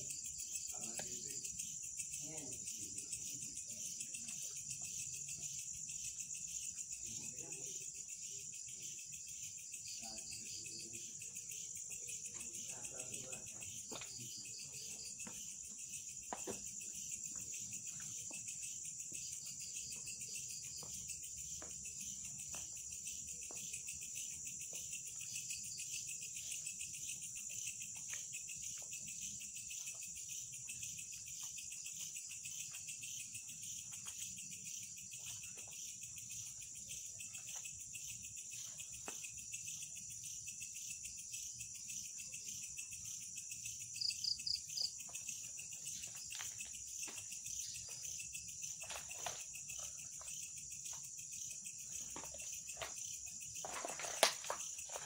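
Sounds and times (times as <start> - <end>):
crickets trilling: 0.0 - 55.0.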